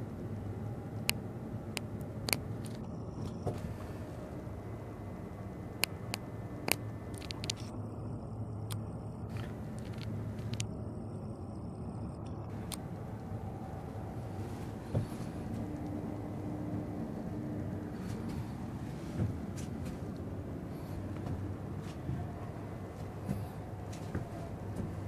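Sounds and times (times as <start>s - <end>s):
cable car rumble: 0.0s - 25.0s
sharp clicks: 5.8s - 7.8s.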